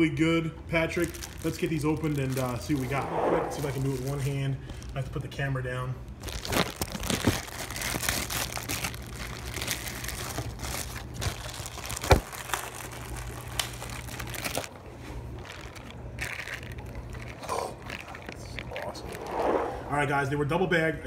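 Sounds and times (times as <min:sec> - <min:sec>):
plastic bags crinkling: 0:00.8 - 0:03.0, 0:06.1 - 0:19.2.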